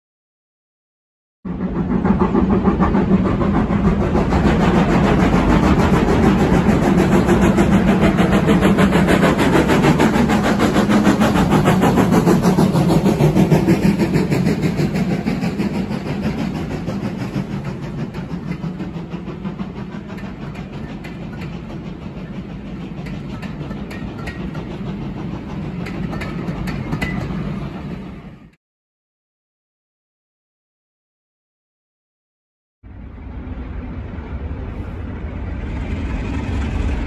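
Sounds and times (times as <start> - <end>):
steam locomotive exhaust beats: 1.5 - 28.6, 32.9 - 37.0
wheels clicking over rail joints: 5.7 - 28.1.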